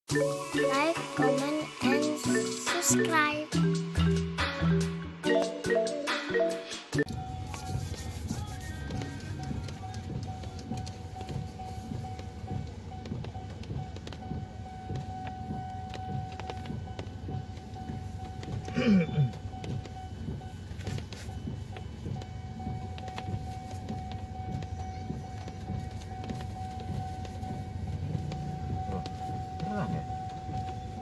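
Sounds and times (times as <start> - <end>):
level crossing warning tone: 0.1 - 31.0
car idling: 7.0 - 31.0.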